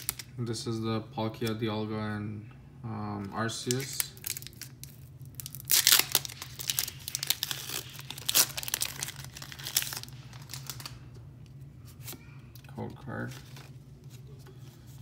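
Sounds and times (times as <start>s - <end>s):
foil wrapper tearing and crinkling: 0.0s - 0.3s, 3.6s - 11.0s.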